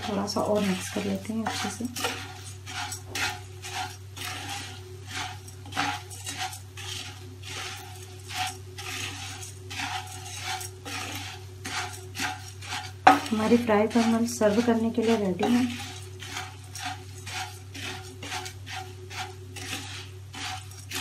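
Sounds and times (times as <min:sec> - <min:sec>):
spatula scraping puffed rice in wok: 0:00.0 - 0:21.0.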